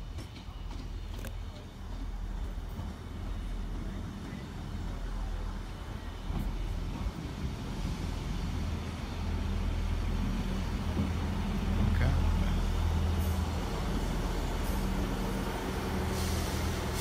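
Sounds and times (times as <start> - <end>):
diesel train engines humming: 0.0 - 17.0.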